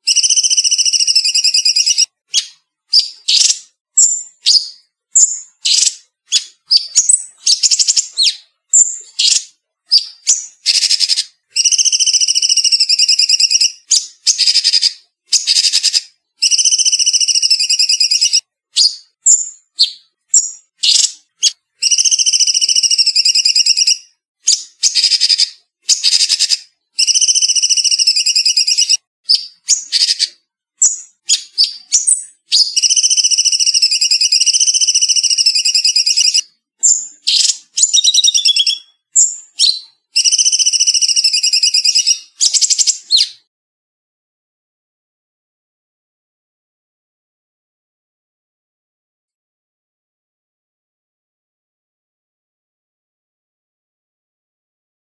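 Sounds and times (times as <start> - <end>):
songbird trilling: 0.1 - 20.0, 24.8 - 43.4.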